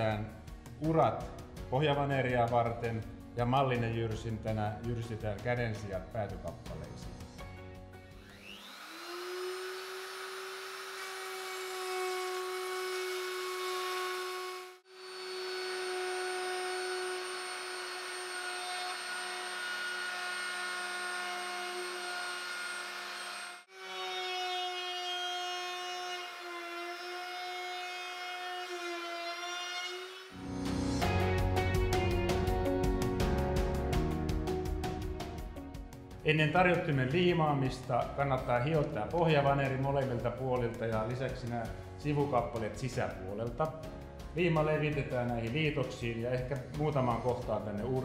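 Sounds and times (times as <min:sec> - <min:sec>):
electric wood router whining: 0:07.7 - 0:30.9.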